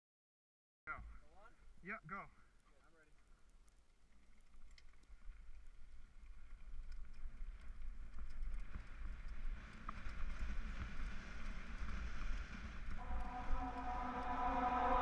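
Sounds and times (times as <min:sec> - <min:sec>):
bike rattling: 0:03.2 - 0:13.0
low wind rumble: 0:07.3 - 0:15.0.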